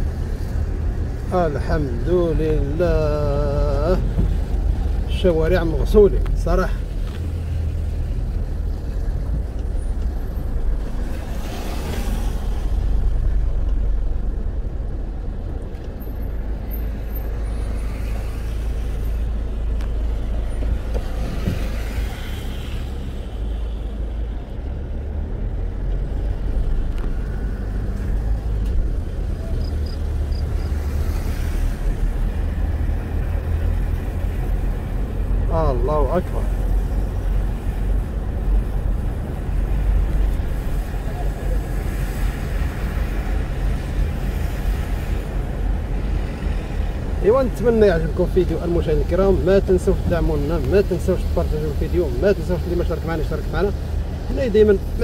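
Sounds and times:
car engine rumble: 0:00.0 - 0:55.0.

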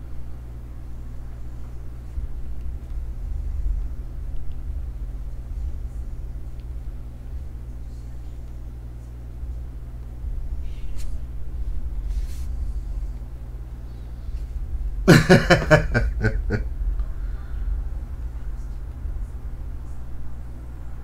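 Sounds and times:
low room hum: 0:00.0 - 0:21.0
person laughing: 0:15.1 - 0:16.7.

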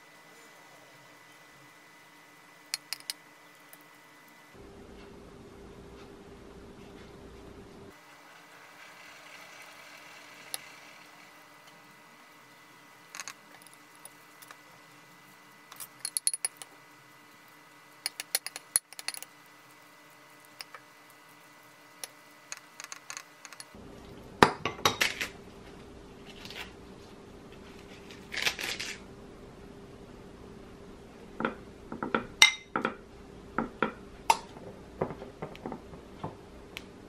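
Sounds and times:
faint steady hum: 0:00.0 - 0:37.0
kitchenware clinking: 0:24.4 - 0:25.3, 0:31.4 - 0:33.0.

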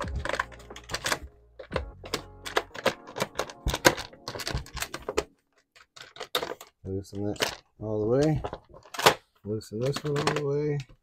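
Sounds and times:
background music: 0:00.0 - 0:05.4
tool clicking and rattling on screws: 0:00.0 - 0:09.2.

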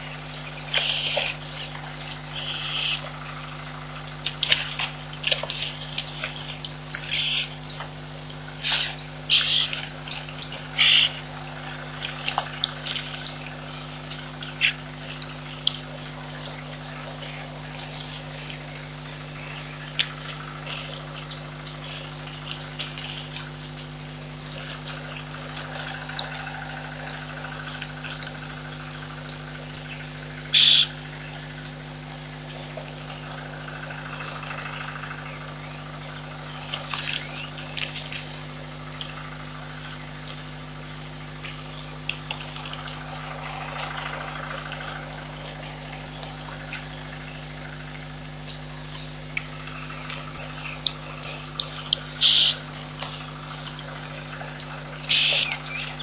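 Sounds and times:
steady low hum: 0:00.0 - 0:56.0
sharp short animal calls: 0:02.4 - 0:03.0, 0:06.9 - 0:07.5, 0:10.5 - 0:11.2, 0:30.5 - 0:30.9, 0:52.2 - 0:52.6, 0:55.1 - 0:55.5
faint chirping: 0:29.7 - 0:30.9, 0:48.9 - 0:52.6, 0:54.6 - 0:56.0.

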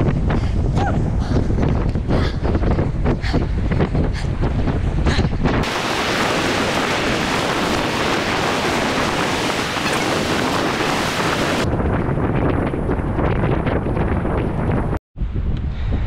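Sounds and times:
wind buffeting microphone: 0:00.0 - 0:16.0
surf breaking on shore: 0:05.6 - 0:11.7.

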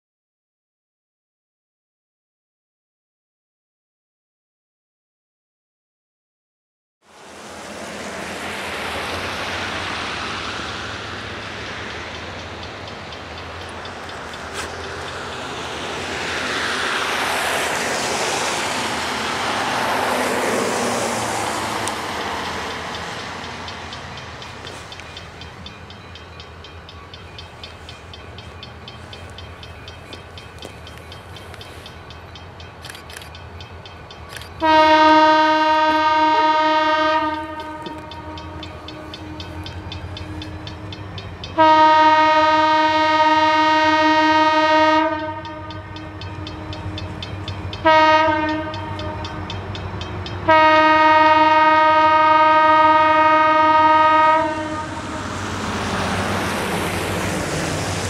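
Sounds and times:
freight train rumbling: 0:07.0 - 0:58.0
locomotive air horn blasts: 0:34.6 - 0:40.6, 0:41.6 - 0:47.1, 0:47.8 - 0:49.5, 0:50.5 - 0:55.4.

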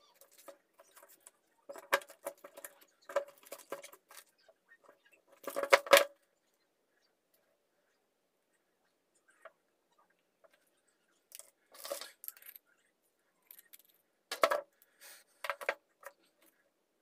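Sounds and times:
metal parts clinking and knocking: 0:11.3 - 0:12.7, 0:13.4 - 0:14.6.

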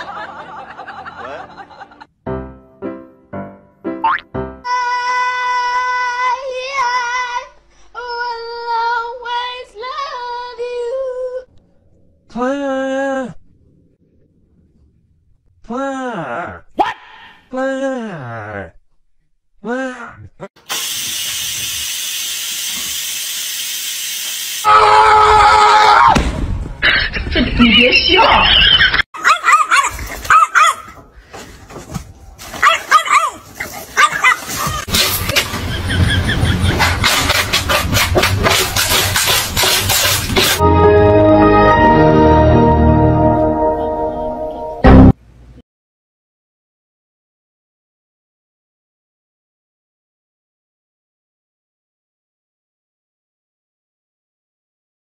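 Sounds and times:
puppy yapping: 0:29.2 - 0:31.0, 0:32.6 - 0:34.8.

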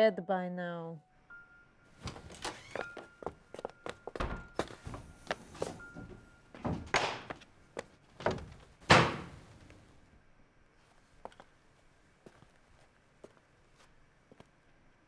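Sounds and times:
door being pulled open: 0:02.0 - 0:03.1
door slamming shut: 0:06.6 - 0:07.3, 0:08.2 - 0:09.5.

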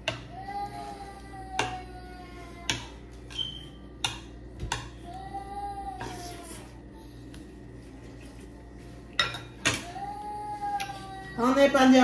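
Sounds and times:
spoons clinking on plates: 0:02.7 - 0:05.0, 0:09.1 - 0:10.0.

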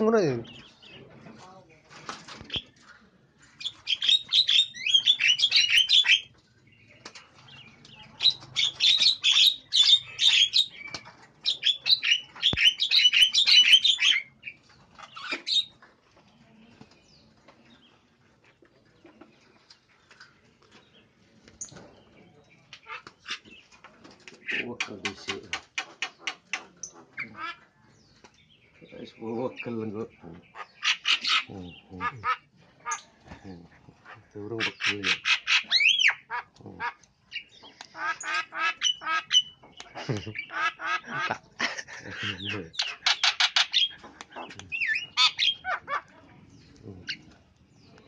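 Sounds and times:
birds squawking harshly: 0:03.6 - 0:06.4, 0:07.4 - 0:15.8, 0:22.7 - 0:23.6, 0:24.4 - 0:28.1, 0:28.8 - 0:47.9.

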